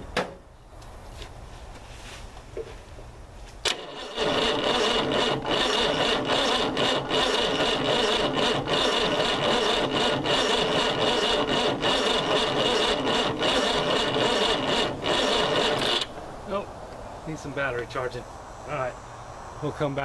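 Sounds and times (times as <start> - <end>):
engine cranking slowly: 3.7 - 16.2.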